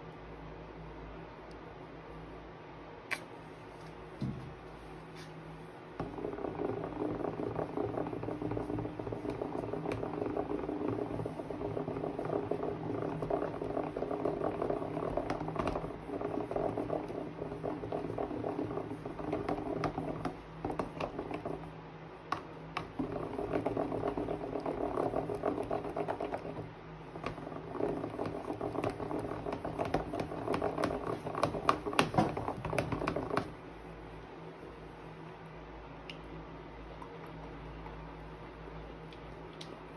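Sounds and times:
spoon stirring sticky slime: 6.1s - 21.6s.

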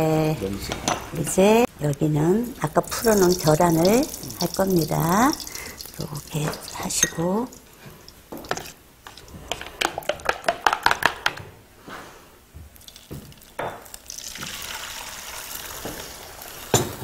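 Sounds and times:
egg sizzling in frying pan: 2.6s - 10.9s, 12.8s - 17.0s
egg pouring into pan: 2.8s - 6.8s, 12.8s - 16.8s.

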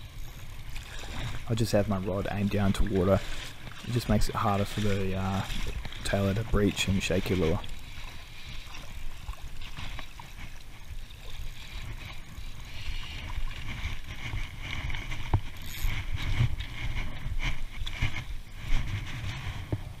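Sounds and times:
fishing reel clicking and winding: 0.0s - 1.2s, 15.5s - 16.3s
wind rumbling on microphone: 0.0s - 20.0s.

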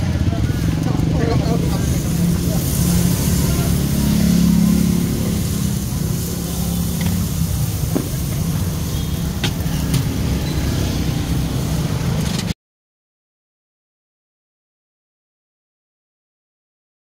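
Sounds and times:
humming engine: 0.0s - 12.5s
low rumble of motor traffic: 0.0s - 12.6s.

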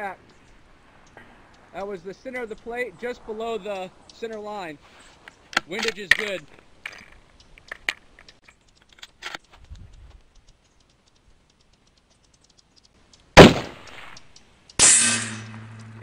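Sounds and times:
rifle shot: 13.4s - 14.2s, 14.8s - 15.6s.

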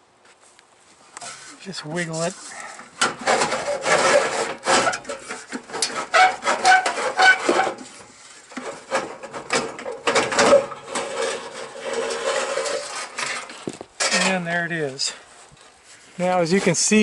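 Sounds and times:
metal casing scraping and knocking: 1.2s - 17.0s
short squeaks: 3.4s - 7.8s.

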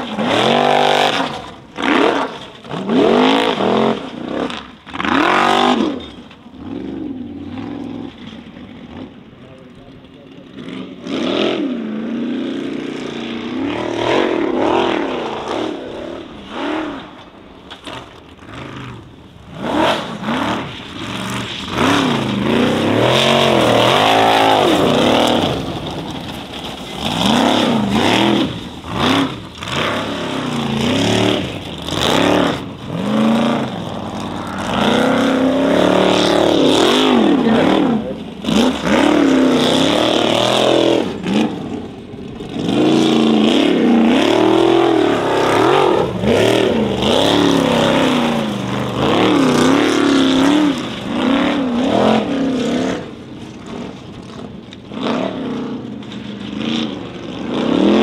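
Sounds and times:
race engine revving: 0.0s - 58.0s.

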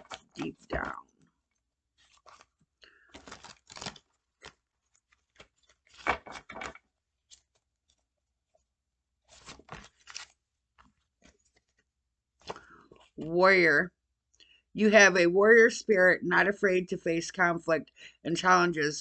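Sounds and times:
cards shuffling: 2.0s - 7.7s, 9.3s - 11.8s.

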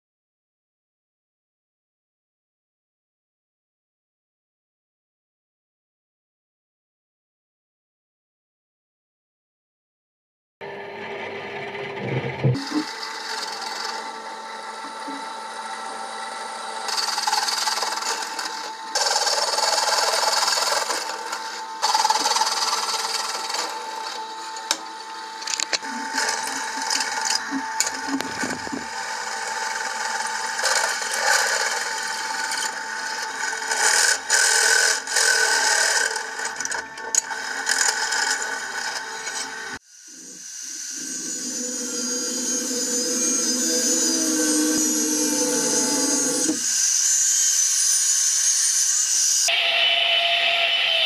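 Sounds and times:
drill press motor hum: 10.6s - 49.2s
drill bit cutting steel: 12.6s - 51.0s.

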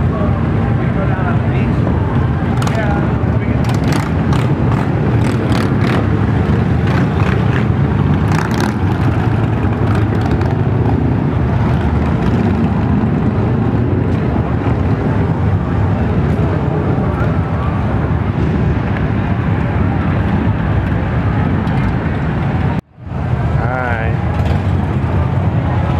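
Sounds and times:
vehicle engine rumble: 0.0s - 25.9s.

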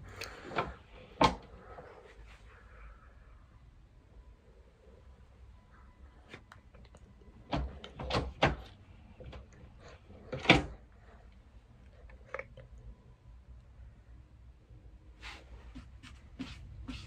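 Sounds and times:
wooden panel knocks and rattles: 7.5s - 8.7s.

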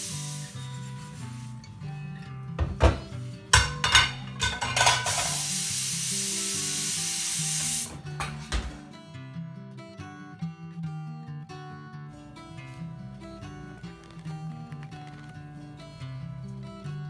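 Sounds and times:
soft guitar music: 0.0s - 17.0s
dishes clattering in sink: 2.6s - 5.5s, 8.0s - 8.8s.

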